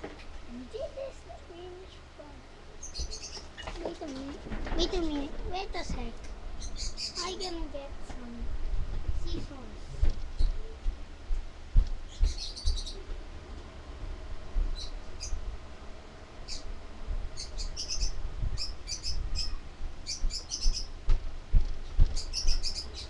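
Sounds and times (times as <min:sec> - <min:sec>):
small birds chirping: 0:00.5 - 0:08.4, 0:09.2 - 0:10.9, 0:12.0 - 0:13.2, 0:14.6 - 0:15.5, 0:16.3 - 0:23.0
low thuds: 0:08.0 - 0:13.3.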